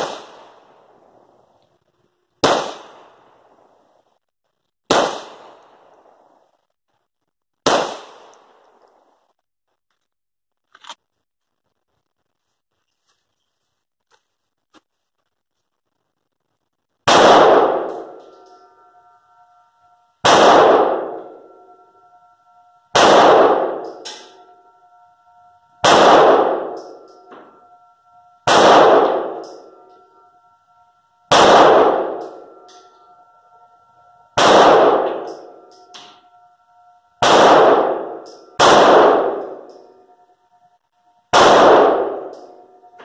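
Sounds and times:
pistol shots ringing indoors: 0.0 - 1.2, 2.4 - 3.7, 4.9 - 6.3, 7.6 - 9.0, 17.1 - 36.4, 37.2 - 40.1, 41.3 - 43.0.

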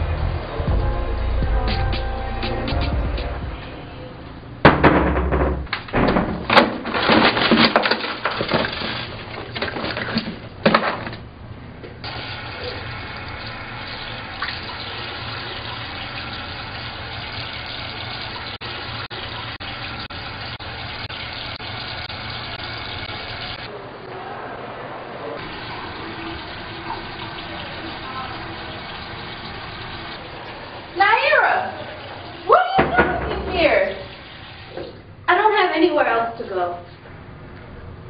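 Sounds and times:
water running: 6.0 - 10.7, 12.0 - 23.7, 25.4 - 37.0
water splashing: 6.6 - 10.6, 25.4 - 35.1.

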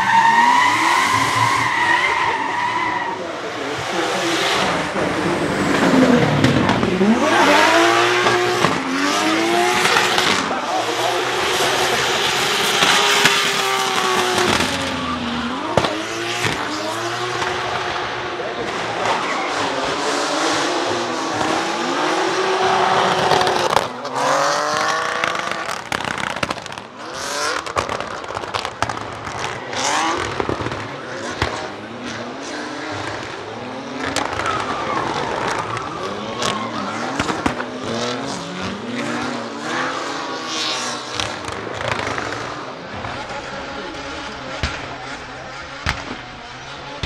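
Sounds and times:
car engines revving hard: 0.0 - 47.0
exhaust pops and bangs: 5.7 - 7.2, 8.1 - 8.9, 12.6 - 14.9, 15.6 - 17.9, 23.0 - 24.0, 24.7 - 31.8, 34.0 - 38.0, 41.1 - 43.5, 44.2 - 47.0.

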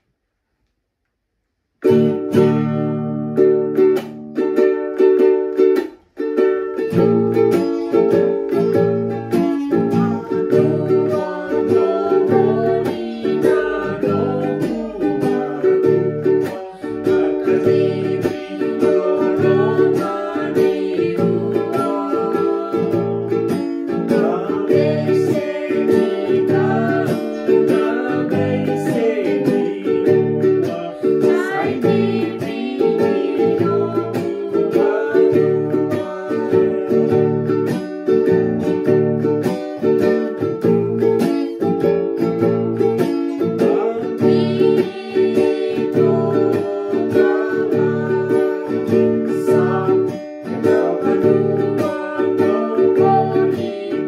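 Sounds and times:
ukulele strumming: 1.6 - 54.0
young person singing: 7.0 - 37.9, 42.8 - 54.0.

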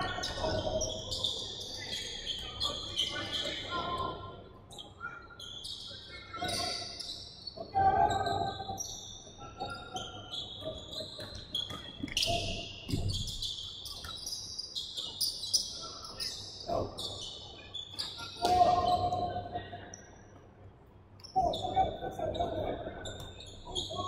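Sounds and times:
players' voices: 0.0 - 5.3, 15.6 - 20.0, 21.4 - 24.0.

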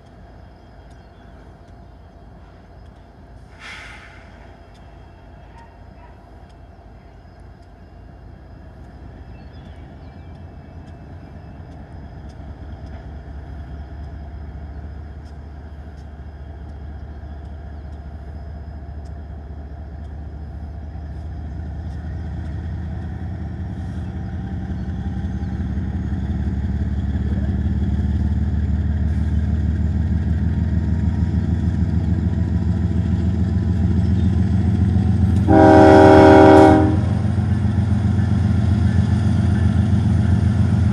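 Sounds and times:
diesel locomotive engine rumble: 0.0 - 40.9
locomotive air horn blasts: 35.4 - 37.5.

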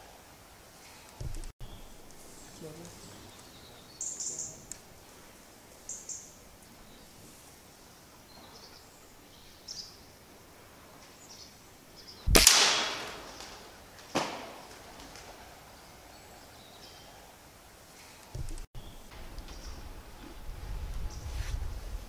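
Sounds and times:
faint high hisses: 0.1 - 8.3
air rifle shot: 12.3 - 15.4.

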